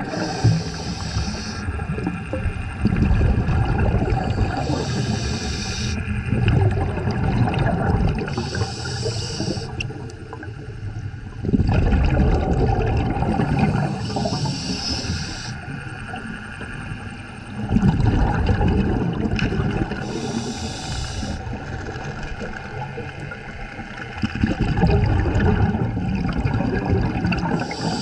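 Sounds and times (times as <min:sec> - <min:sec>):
regulator hiss on inhale: 0:00.0 - 0:01.8, 0:04.3 - 0:06.0, 0:08.3 - 0:09.9, 0:13.8 - 0:15.8, 0:20.0 - 0:21.5, 0:27.6 - 0:28.0
rush of bubbles: 0:00.0 - 0:10.7, 0:11.3 - 0:15.2, 0:17.6 - 0:28.0.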